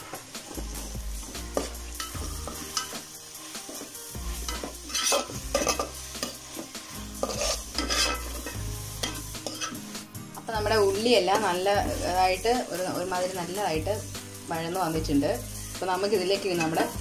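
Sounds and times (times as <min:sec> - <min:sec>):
onions sizzling in oil: 0:00.0 - 0:17.0
metal spoon scraping pot: 0:04.4 - 0:06.4, 0:07.2 - 0:09.9.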